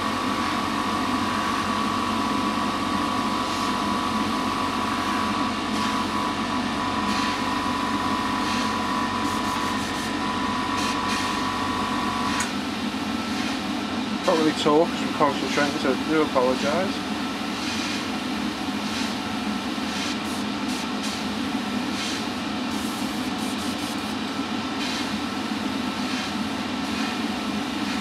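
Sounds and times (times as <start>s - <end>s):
airbrush compressor humming: 0.0s - 21.2s
air hissing through airbrush: 7.0s - 7.5s, 8.4s - 10.1s, 17.6s - 18.1s, 18.8s - 19.2s, 19.8s - 21.3s, 21.9s - 24.2s, 26.0s - 28.0s.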